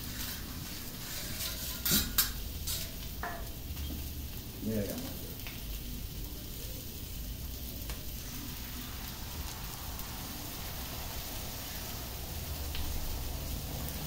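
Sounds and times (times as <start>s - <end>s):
egg poured onto griddle: 0.0s - 3.6s, 7.9s - 14.0s
shrimp sizzling on a griddle: 0.0s - 14.0s.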